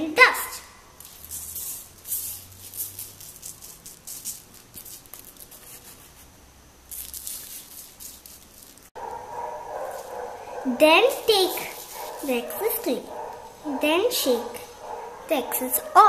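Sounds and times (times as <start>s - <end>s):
glitter grains rattling and hissing: 1.0s - 6.1s, 6.8s - 9.0s.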